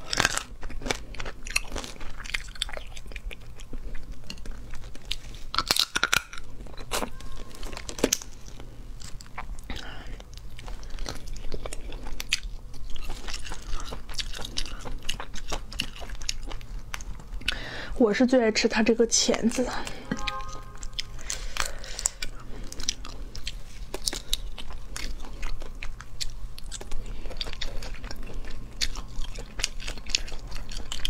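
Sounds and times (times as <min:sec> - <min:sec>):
chewing crunch: 0:00.0 - 0:17.7, 0:19.8 - 0:31.0
shrimp shells cracking: 0:05.5 - 0:07.1.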